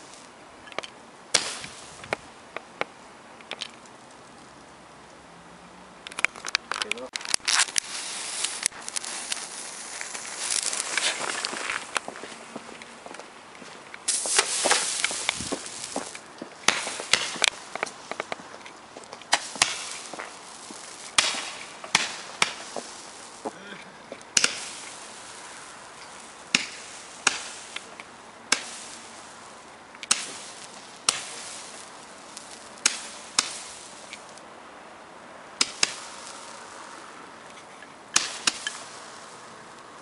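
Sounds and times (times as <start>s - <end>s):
roman candle pops: 0.7s - 3.9s, 14.0s - 23.6s, 24.2s - 29.2s, 30.0s - 34.4s, 35.6s - 36.6s, 38.1s - 39.2s.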